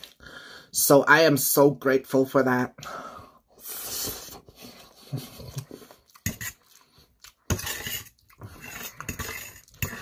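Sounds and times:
close-up chewing: 0:04.4 - 0:10.0
fork scraping a metal plate: 0:06.2 - 0:06.7, 0:07.5 - 0:10.0.

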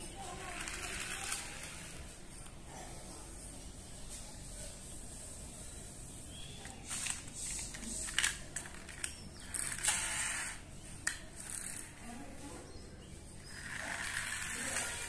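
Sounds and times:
toy pull-back motor whirring: 0:00.4 - 0:02.0, 0:06.8 - 0:12.0, 0:13.4 - 0:15.0.

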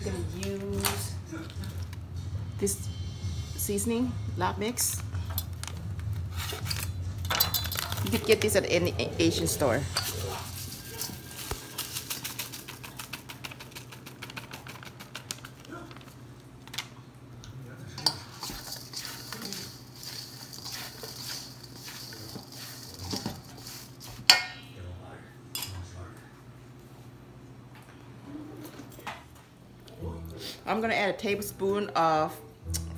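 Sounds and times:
plastic packet crinkling: 0:10.5 - 0:16.2, 0:18.5 - 0:24.0
spatula scraping a metal bowl: 0:18.0 - 0:24.4.

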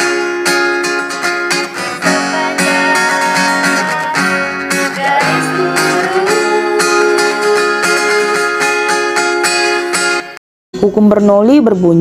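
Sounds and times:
acoustic guitar strumming: 0:00.0 - 0:10.4
woman singing: 0:01.9 - 0:08.7.

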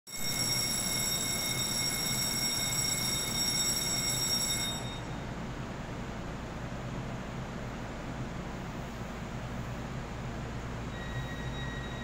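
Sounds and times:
high-pitched electronic warning tone: 0:00.1 - 0:05.2, 0:10.9 - 0:12.0.

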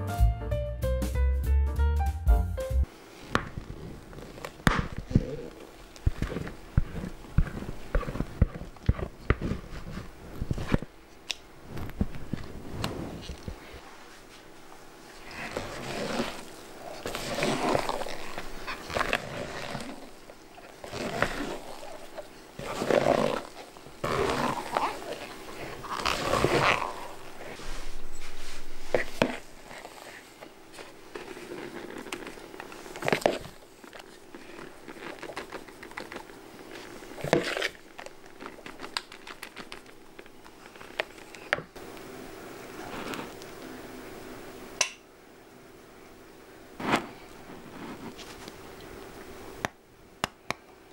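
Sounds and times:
faint steady hum: 0:02.7 - 0:50.9
cream squelching: 0:03.2 - 0:14.4, 0:15.0 - 0:41.8
spatula scraping in plastic bowl: 0:06.0 - 0:10.9, 0:15.2 - 0:39.8.

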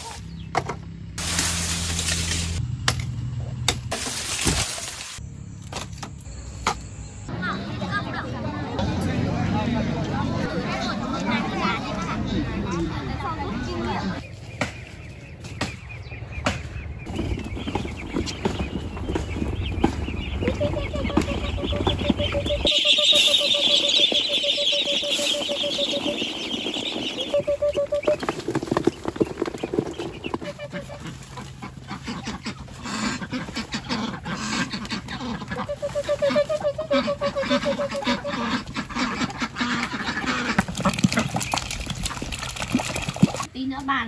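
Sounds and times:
high chirring chorus: 0:22.2 - 0:28.0.

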